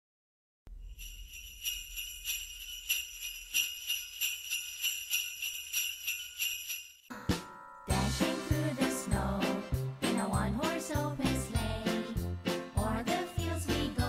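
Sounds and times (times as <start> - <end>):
sleigh bells shaking: 0.7 - 7.1, 12.8 - 14.0.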